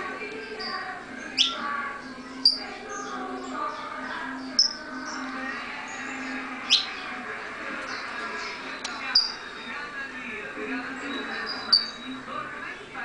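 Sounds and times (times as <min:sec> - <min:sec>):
finch chirping: 0:00.4 - 0:07.1, 0:07.8 - 0:09.9, 0:10.8 - 0:12.3.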